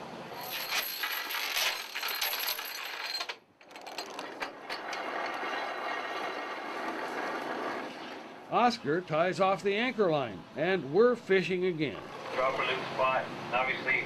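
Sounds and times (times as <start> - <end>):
anchor chain rattling: 0.4 - 6.4.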